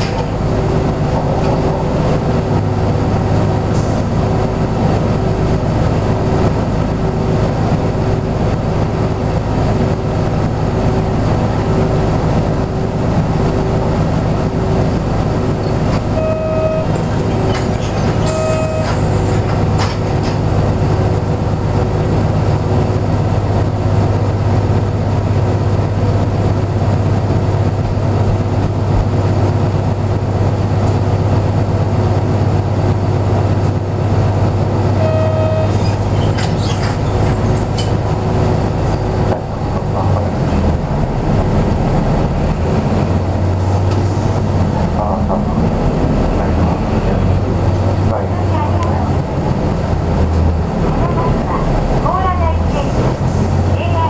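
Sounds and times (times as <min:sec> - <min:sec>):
bus diesel engine idling: 0:00.0 - 0:54.0
short electronic beeps: 0:16.2 - 0:17.6, 0:18.2 - 0:19.2, 0:35.0 - 0:35.9.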